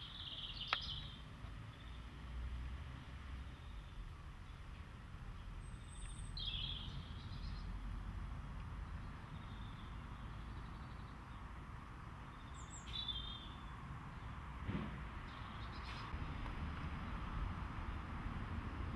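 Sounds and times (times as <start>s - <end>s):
small bird chirping: 0.0s - 2.0s, 5.6s - 7.7s, 12.3s - 13.7s
low steady rumble: 16.1s - 18.9s.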